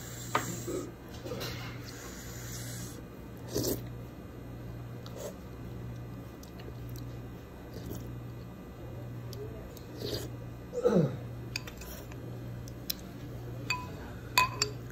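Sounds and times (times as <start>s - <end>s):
steady low hum: 0.0s - 14.9s.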